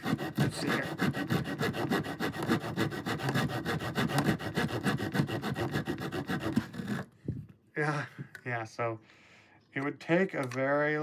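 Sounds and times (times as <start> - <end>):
small saw cutting wood: 0.0 - 7.2.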